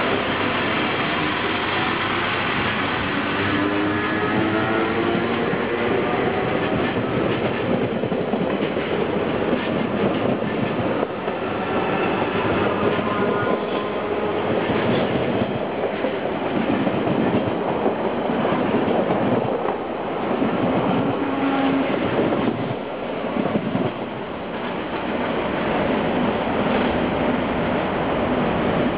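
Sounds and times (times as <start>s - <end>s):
train wheels clattering over rail joints: 4.4s - 25.7s.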